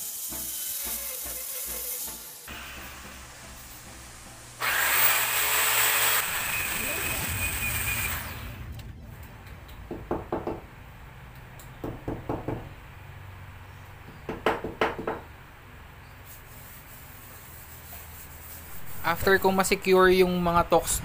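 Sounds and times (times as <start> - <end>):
electric drill boring into wall: 0.0 - 2.8, 4.6 - 8.6.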